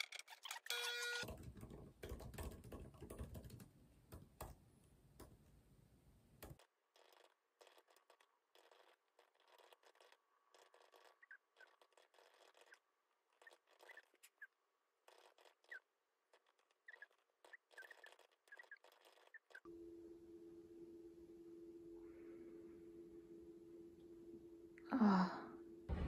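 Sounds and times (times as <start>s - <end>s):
typing on computer keyboard: 1.2s - 4.5s.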